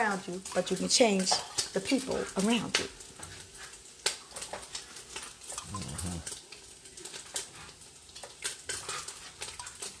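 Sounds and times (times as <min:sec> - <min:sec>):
short low vocal sound: 0:05.6 - 0:06.3.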